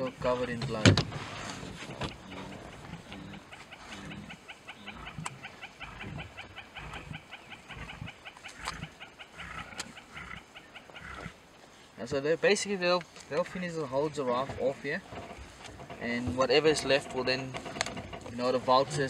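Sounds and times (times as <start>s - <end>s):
lions growling: 0.0s - 11.4s, 13.4s - 19.0s
rapid ticking call: 1.9s - 11.4s.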